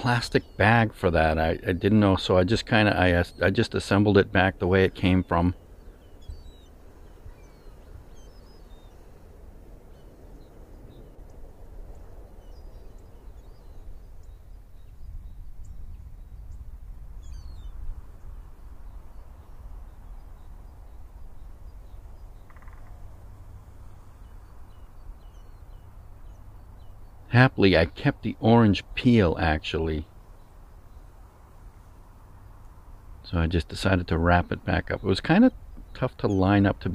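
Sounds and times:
faint high bird calls: 0.0s - 36.9s.

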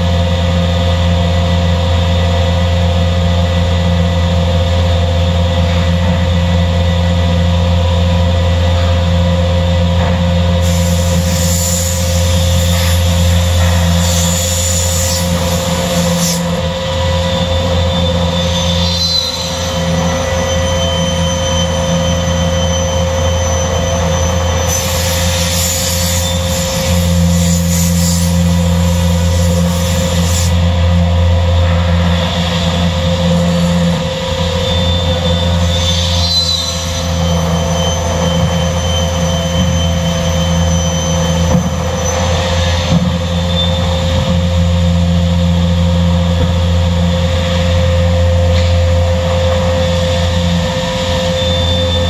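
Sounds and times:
panel saw machine hum: 0.0s - 41.3s.

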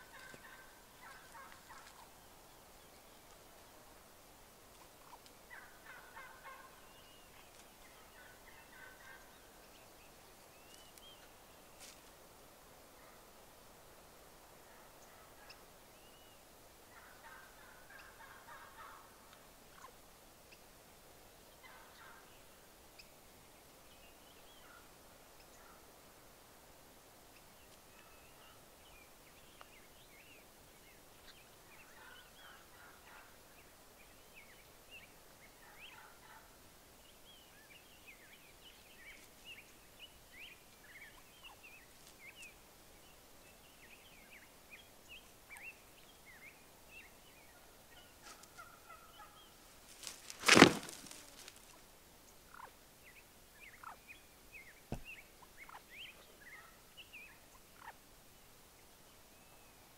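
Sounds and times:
turkey gobbling: 0.1s - 2.1s, 5.0s - 6.8s.

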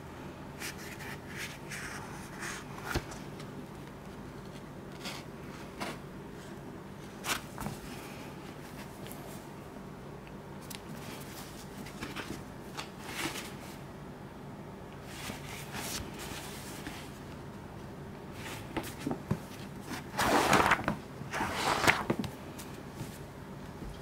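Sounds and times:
book pages rustling: 10.6s - 13.8s, 15.1s - 17.3s, 18.4s - 23.2s
paper cover rustling: 18.4s - 22.4s.

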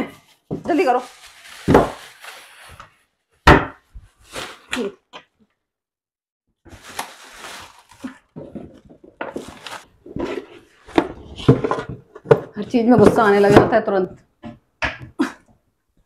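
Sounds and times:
plastic bag rustling: 0.2s - 3.2s, 4.0s - 4.9s, 6.6s - 11.5s.

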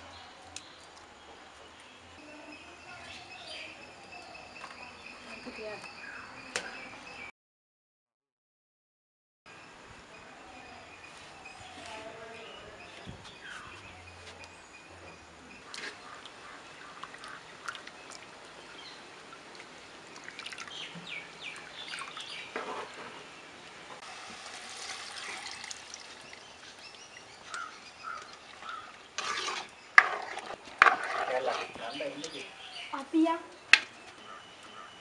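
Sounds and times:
liquid trickling and splashing: 16.0s - 22.5s, 24.0s - 29.6s.

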